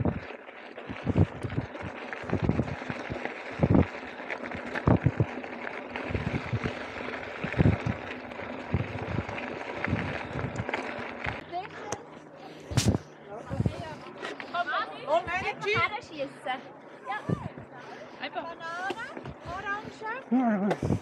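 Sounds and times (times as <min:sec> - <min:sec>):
bike tyres on gravel: 0:00.0 - 0:15.4
bike rattling: 0:00.0 - 0:21.0.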